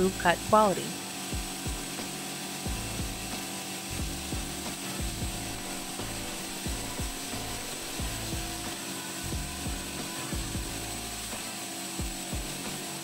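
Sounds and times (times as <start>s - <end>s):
circular saw cutting steel: 0.0s - 13.0s.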